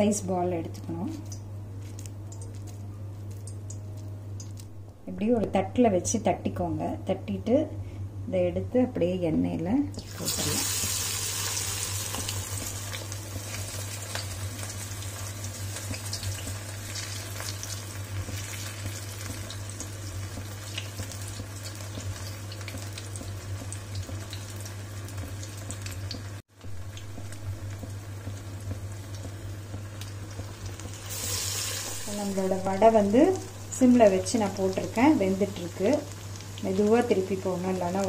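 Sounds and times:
oil crackling: 0:01.8 - 0:04.8, 0:25.7 - 0:32.6
food sizzling in hot oil: 0:10.0 - 0:38.0.

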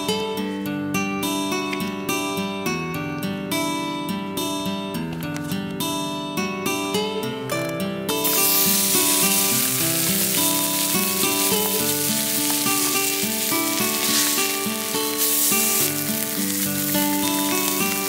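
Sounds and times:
meat sizzling in a frying pan: 0:08.2 - 0:18.0.

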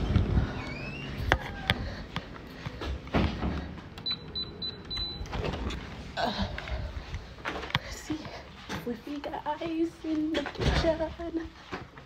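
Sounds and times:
rising squeak: 0:00.0 - 0:01.8.

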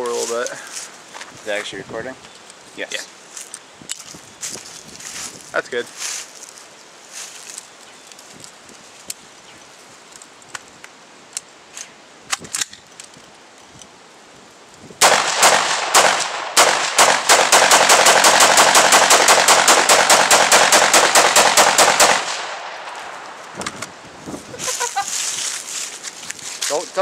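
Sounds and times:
rifle gunshots: 0:15.0 - 0:23.2.

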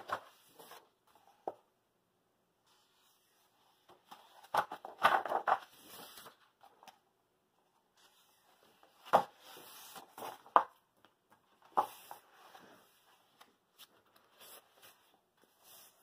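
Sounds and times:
paper pages rustling: 0:02.9 - 0:07.0, 0:08.0 - 0:10.7, 0:11.3 - 0:16.0.

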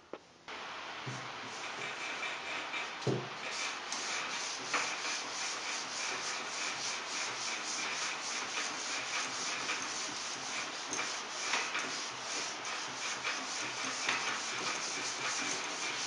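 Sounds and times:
sanding board rubbing filler: 0:01.1 - 0:16.0
board knocking on panel: 0:03.0 - 0:03.3.

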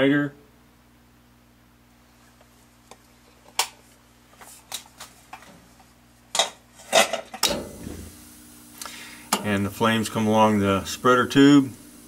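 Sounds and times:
furnace clunks: 0:06.4 - 0:08.3
low rumble of gas igniting: 0:07.4 - 0:12.0.

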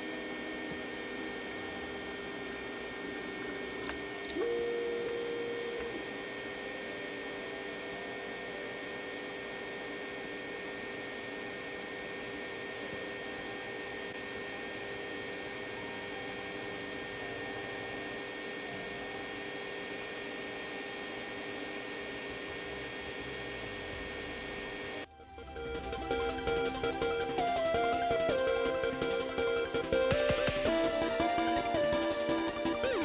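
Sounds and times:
printer tone: 0:00.0 - 0:06.6, 0:25.0 - 0:33.0
printer fans and motors humming: 0:00.0 - 0:33.0.

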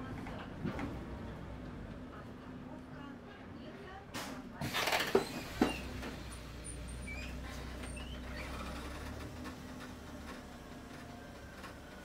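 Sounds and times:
bus engine hum: 0:04.7 - 0:12.0.

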